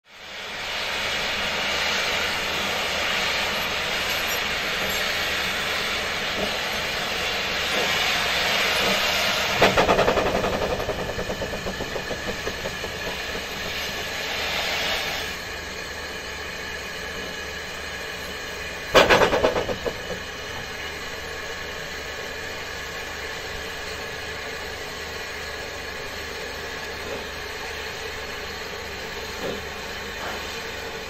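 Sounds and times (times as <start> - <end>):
steam locomotive hissing: 0.1 - 26.0
rapid exhaust beats: 9.4 - 14.9, 19.0 - 20.7.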